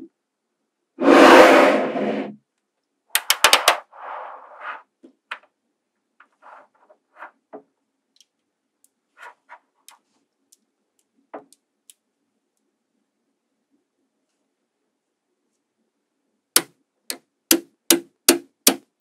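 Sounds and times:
rush of noise: 1.0s - 2.4s.

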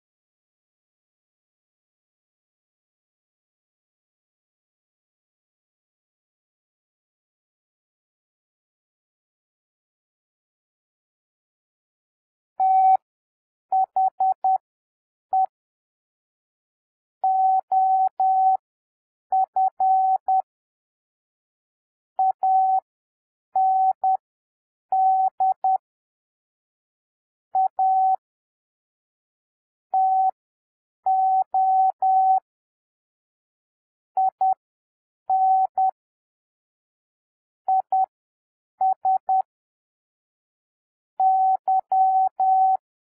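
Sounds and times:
morse code beeps: 41.2s - 42.8s.

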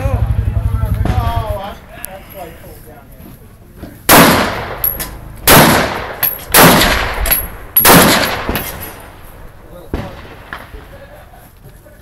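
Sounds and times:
rifle shots echoing: 4.1s - 10.9s.

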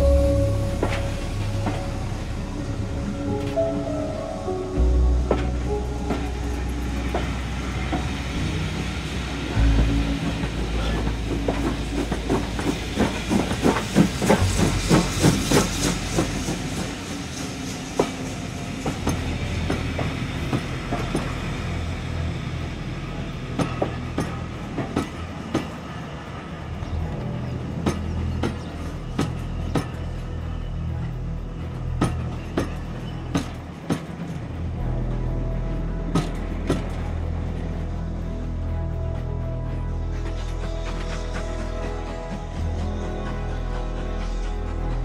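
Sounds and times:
train low rumble: 0.0s - 45.0s
train wheels clicking over rail joints: 5.2s - 38.3s.

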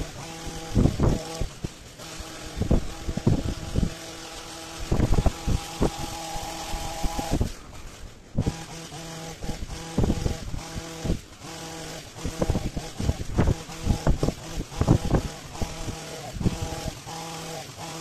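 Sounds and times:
wind thumping on microphone: 0.0s - 1.8s, 2.4s - 4.0s, 4.8s - 7.6s, 8.3s - 8.7s, 9.4s - 11.2s, 12.2s - 16.9s
hedge trimmer engine running: 0.0s - 18.0s.

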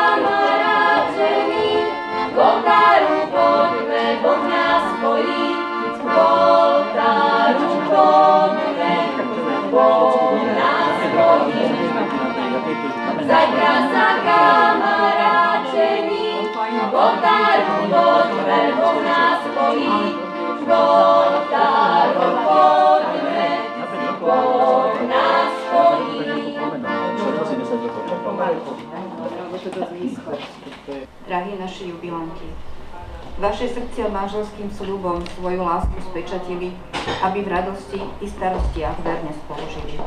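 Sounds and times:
group singing in harmony: 0.0s - 29.5s.

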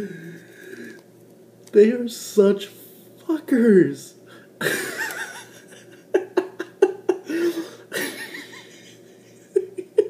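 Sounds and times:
man laughing: 4.6s - 10.0s.

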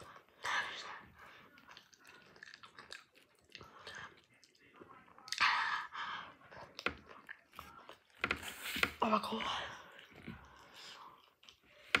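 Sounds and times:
person chewing with wet mouth clicks: 1.6s - 4.6s.

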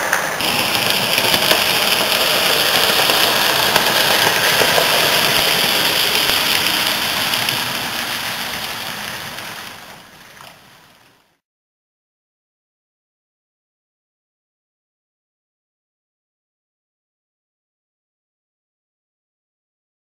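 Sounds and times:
model train motor whirring: 0.0s - 11.3s.

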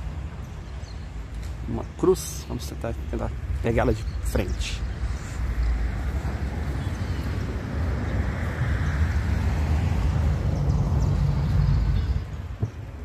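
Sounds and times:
vehicle passing by: 4.6s - 13.0s.

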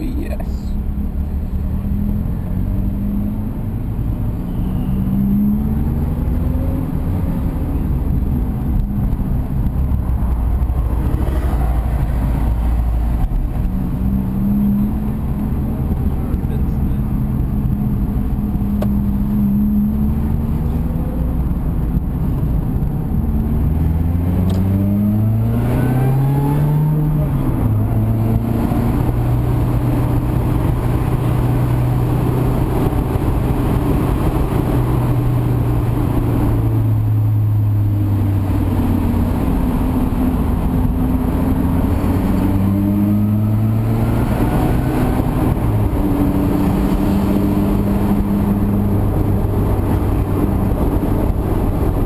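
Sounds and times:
car engine revving from cabin: 13.2s - 52.0s.

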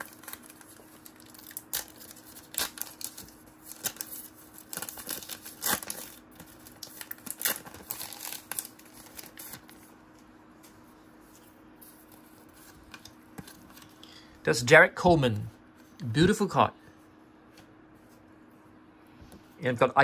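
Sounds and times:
wrapper crinkling and tearing: 0.0s - 9.7s.

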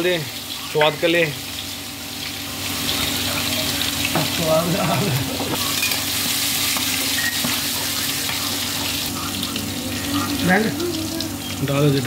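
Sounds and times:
garlic sizzling in hot oil: 0.0s - 12.0s.

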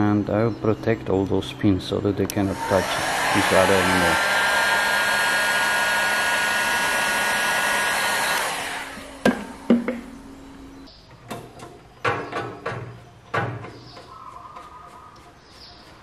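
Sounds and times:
heat gun blowing: 2.4s - 10.2s
sharp knocks: 9.2s - 10.1s.

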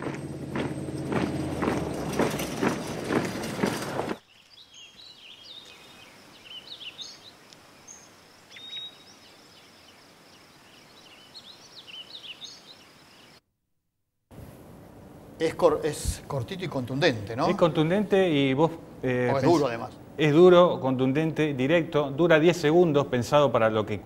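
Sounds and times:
marching boots crunching: 0.0s - 4.2s
small birds chirping: 4.1s - 13.4s
quiet outdoor hiss: 4.2s - 13.4s, 14.3s - 24.0s.

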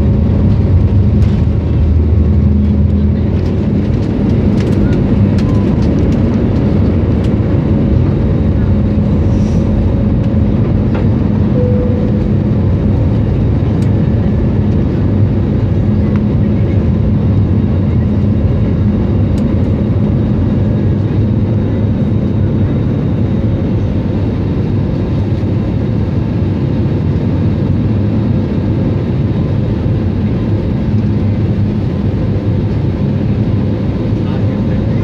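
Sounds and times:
jet engine drone in cabin: 0.0s - 35.0s
rushing air: 8.9s - 12.8s.

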